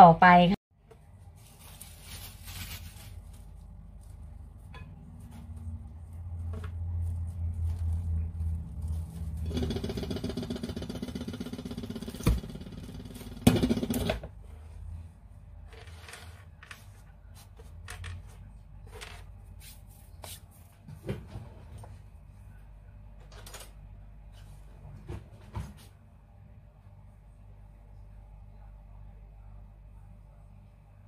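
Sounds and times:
hands shaping bread dough: 0.9 - 10.3, 16.8 - 22.9.

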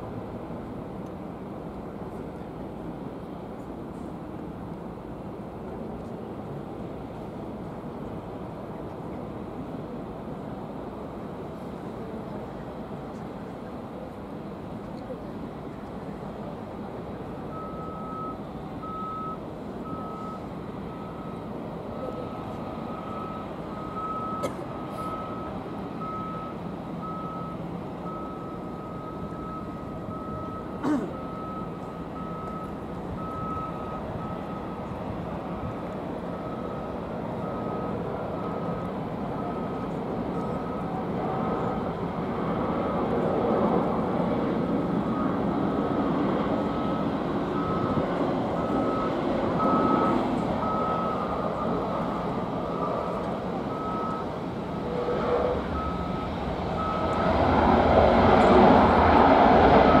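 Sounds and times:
jet engine noise: 0.0 - 60.0
reversing alarm beeping: 17.5 - 34.9, 35.6 - 41.8, 45.0 - 57.3, 59.8 - 60.0.

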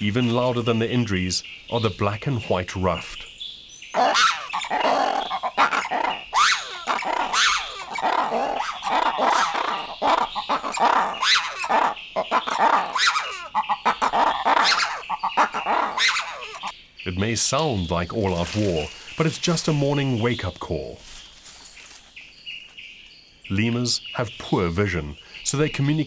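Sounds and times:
lemurs calling in chorus: 3.9 - 21.2.

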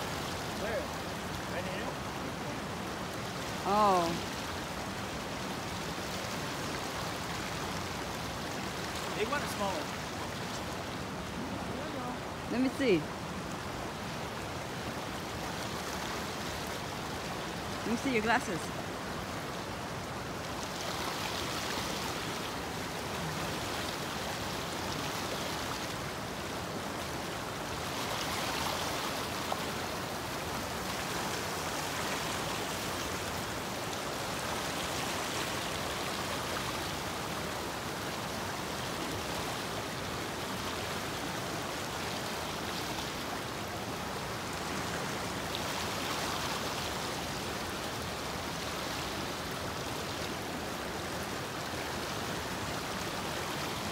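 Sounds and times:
stream rushing over rocks: 0.0 - 53.9.

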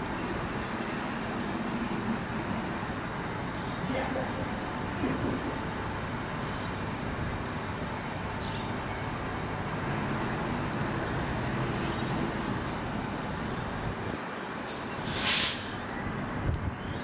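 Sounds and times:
electric train humming: 0.0 - 16.7
air hissing: 14.7 - 15.8.

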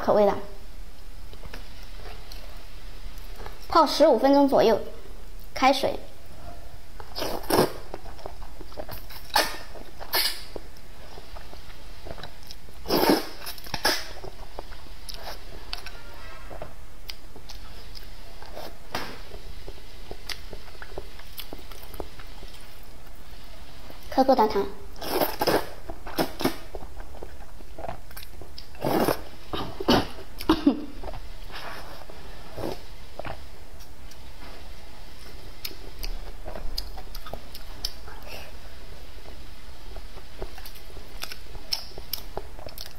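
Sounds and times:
slurping noodles: 7.2 - 7.9, 12.8 - 14.2, 25.0 - 26.6, 28.8 - 30.2, 31.5 - 32.9
chewing: 25.1 - 29.7, 35.6 - 38.0, 40.2 - 42.9.

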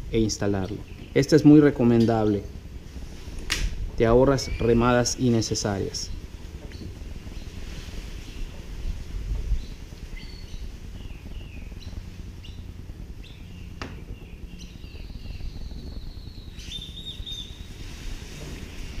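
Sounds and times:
wind rumble on microphone: 0.0 - 19.0
birds chirping and whistling: 0.2 - 2.6, 4.0 - 19.0
bird trill: 9.6 - 17.8.

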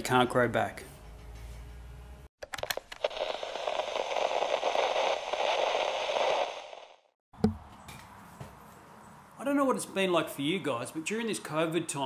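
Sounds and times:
static hiss and crackle: 2.7 - 7.1.

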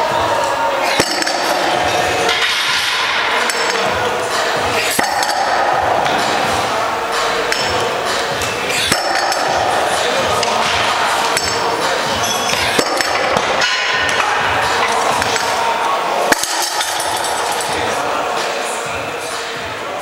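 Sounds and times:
steady background noise: 0.0 - 20.0
weight plates clanking: 0.1 - 19.4
sharp metallic knocks: 4.9 - 15.6.

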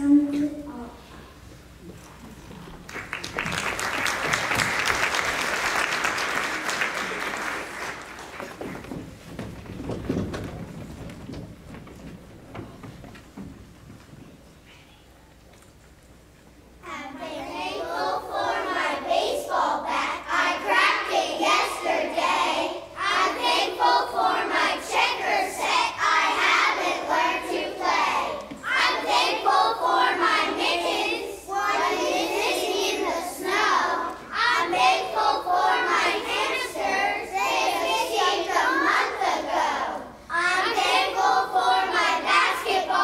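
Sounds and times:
children singing together: 16.9 - 43.0.

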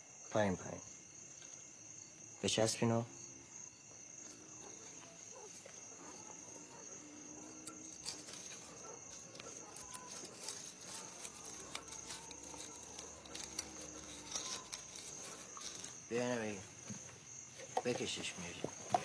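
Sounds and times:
crickets chirring: 0.0 - 19.0
rope net rustling: 4.2 - 16.8.

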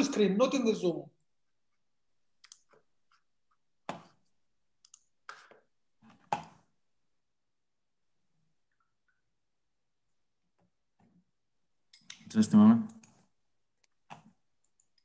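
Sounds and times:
computer mouse clicks: 2.4 - 3.3, 4.8 - 6.6, 11.9 - 15.0.

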